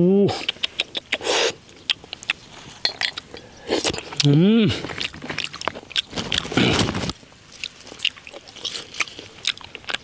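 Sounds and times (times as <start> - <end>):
mouth smacking: 0.1 - 7.0
person slurping snails: 0.3 - 10.0.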